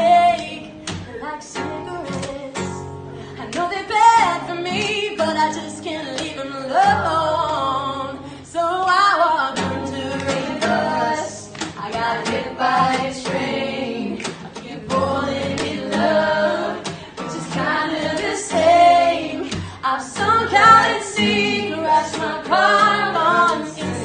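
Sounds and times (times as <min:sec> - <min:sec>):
strummed acoustic guitar: 0:00.0 - 0:24.0
woman singing: 0:00.0 - 0:24.0.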